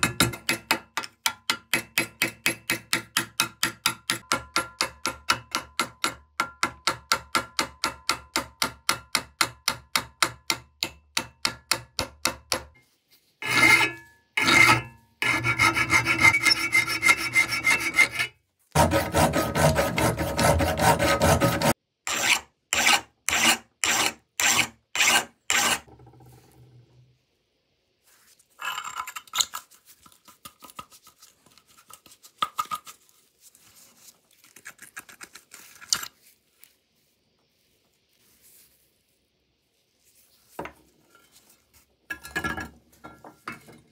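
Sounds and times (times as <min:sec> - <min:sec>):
scraping a trowel: 0:13.4 - 0:26.0.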